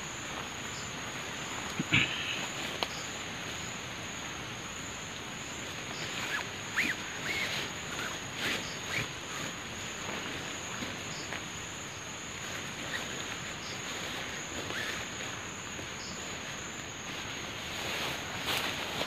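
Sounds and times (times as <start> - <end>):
insects trilling: 0.0 - 19.0
rustling of undergrowth and tarp: 0.0 - 19.0.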